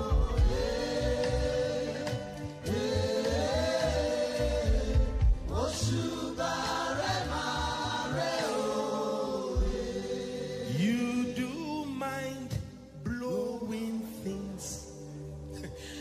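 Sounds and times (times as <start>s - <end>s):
choir singing slow held notes: 0.0s - 12.6s
low instrumental accompaniment: 0.0s - 15.8s.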